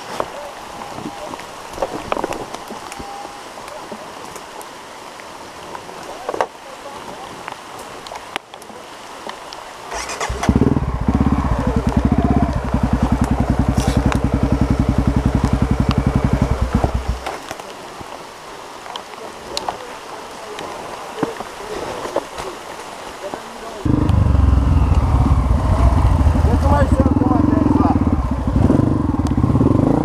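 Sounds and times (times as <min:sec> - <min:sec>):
dirt bike engine running: 0:10.1 - 0:17.3, 0:23.9 - 0:30.0.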